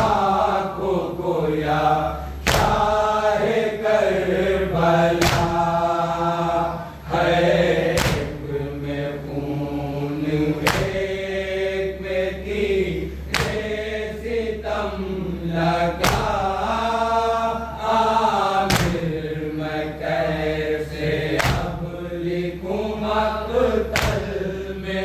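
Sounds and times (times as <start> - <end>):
group chanting a lament: 0.0 - 25.0
sharp unison strikes: 2.4 - 3.0, 5.2 - 5.7, 7.9 - 8.5, 13.3 - 13.7, 16.0 - 16.4, 18.7 - 19.0, 21.4 - 21.8, 23.9 - 24.4.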